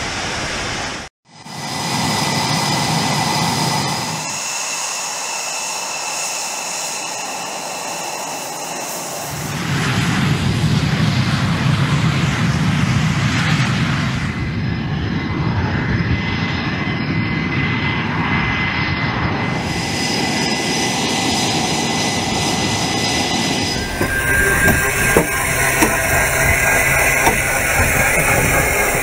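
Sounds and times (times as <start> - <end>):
jet engine rumble and hiss: 0.0 - 29.0
thin high whine: 1.4 - 9.7, 19.5 - 29.0.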